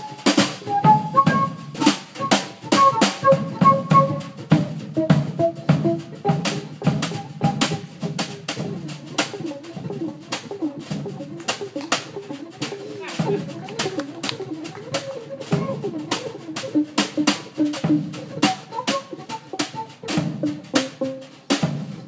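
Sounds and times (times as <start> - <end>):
flute playing melody: 0.0 - 21.3
drum kit and cymbal hits: 0.0 - 22.0
upright bass: 4.5 - 21.3.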